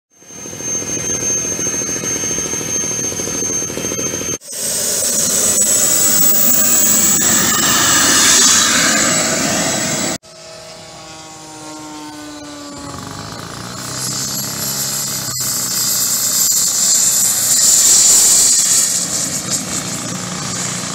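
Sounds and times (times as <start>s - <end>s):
model jet turbine whine: 0.1s - 20.9s
rushing exhaust noise: 0.2s - 10.2s, 11.2s - 20.9s.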